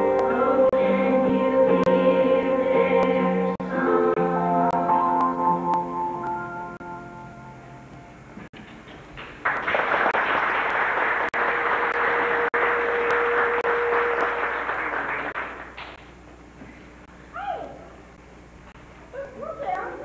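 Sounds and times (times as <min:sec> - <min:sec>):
audience applauding: 0:09.2 - 0:16.0.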